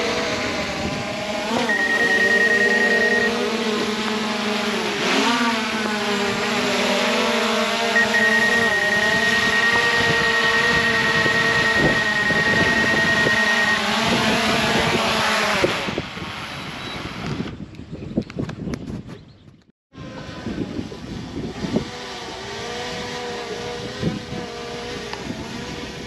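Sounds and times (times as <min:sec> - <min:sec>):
drone propellers whining: 0:00.0 - 0:17.6, 0:20.0 - 0:26.0
steady high tone: 0:01.7 - 0:03.9, 0:05.3 - 0:14.0.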